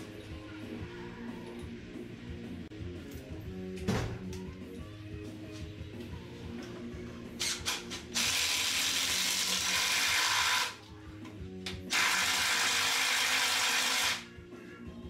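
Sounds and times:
power tool running on fasteners: 7.4s - 10.8s, 11.9s - 14.2s.

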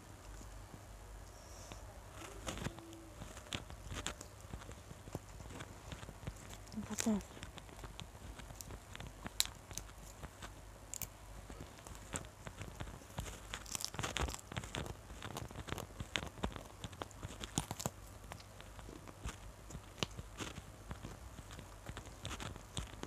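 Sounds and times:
wet crunchy chewing: 2.2s - 23.0s.

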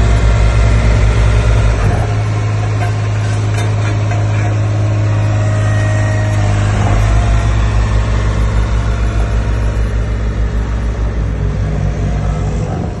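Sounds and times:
roller diesel engine running: 0.0s - 13.0s.

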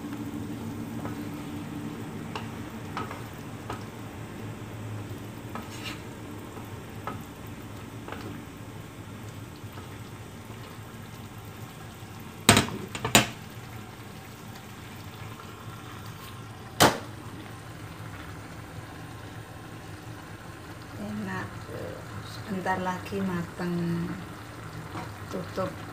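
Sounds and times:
food sizzling in a wok: 0.0s - 25.9s
wooden spatula stirring: 5.4s - 8.6s.

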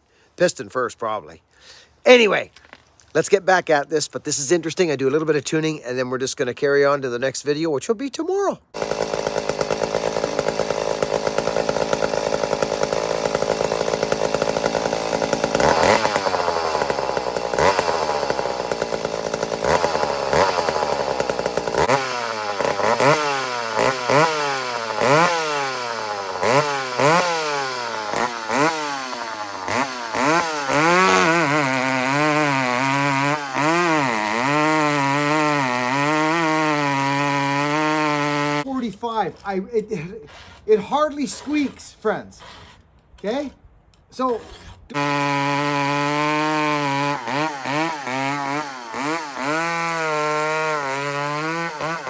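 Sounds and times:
chainsaw running at high revs: 8.7s - 38.7s, 44.9s - 52.0s
chainsaw cutting log: 8.7s - 38.8s, 39.4s - 43.5s, 44.2s - 52.0s.

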